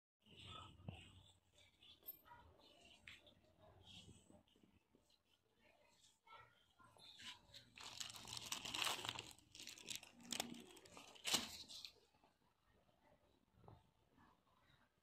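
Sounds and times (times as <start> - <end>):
plastic film crinkling: 7.5 - 12.0.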